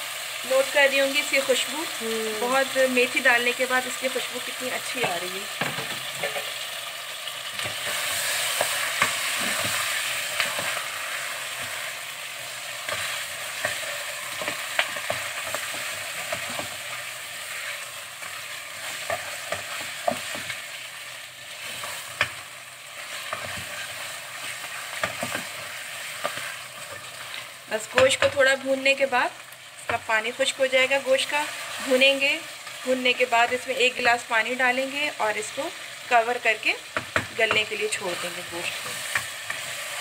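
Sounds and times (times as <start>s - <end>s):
meat sizzling in a pot: 0.0s - 40.0s
spatula scraping a pot: 23.0s - 27.4s.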